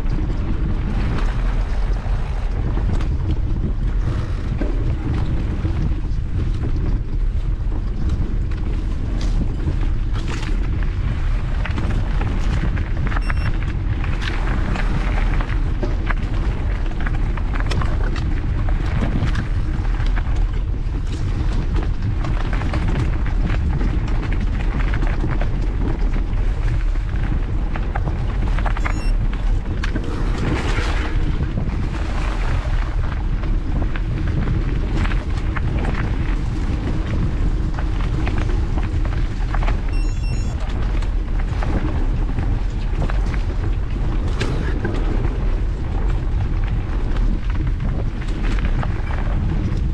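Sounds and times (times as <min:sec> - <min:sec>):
bike tyres crunching on dirt: 0:00.0 - 0:49.9
wind buffeting microphone: 0:00.0 - 0:49.9.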